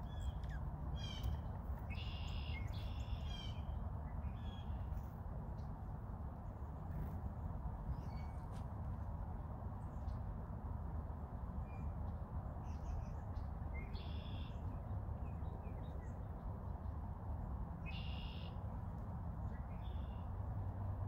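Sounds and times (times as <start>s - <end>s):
bird calls: 0.0s - 3.7s.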